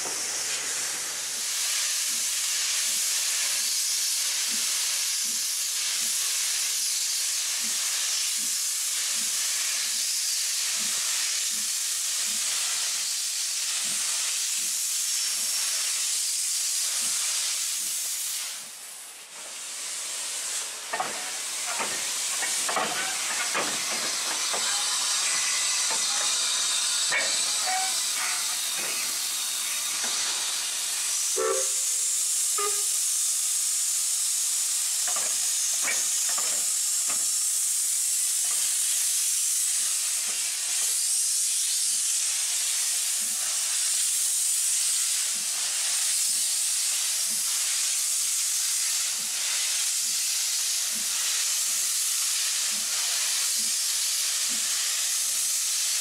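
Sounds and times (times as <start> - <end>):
steam hiss: 0.0 - 56.0.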